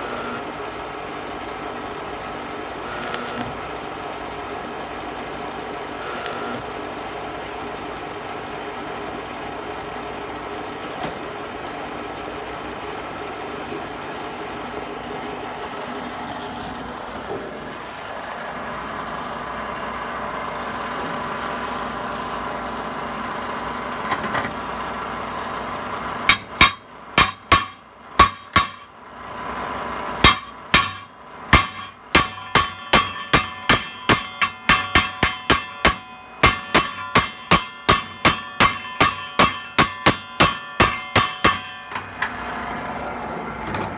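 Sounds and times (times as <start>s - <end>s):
stick welder humming: 2.0s - 6.8s, 26.2s - 29.1s, 30.0s - 42.6s
ringing metal strikes: 26.3s - 29.0s, 30.2s - 42.4s.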